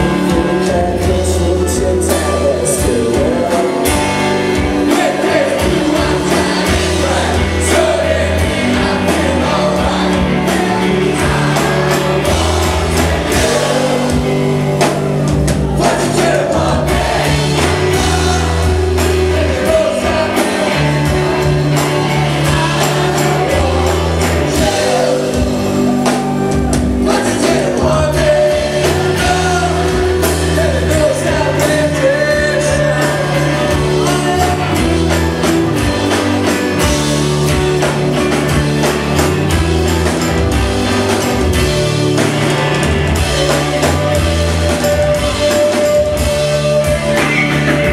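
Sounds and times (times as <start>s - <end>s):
man singing lead vocals: 0.0s - 14.9s, 15.6s - 35.5s
bass guitar: 0.0s - 47.9s
drums: 0.0s - 47.9s
electric guitars: 0.0s - 47.9s.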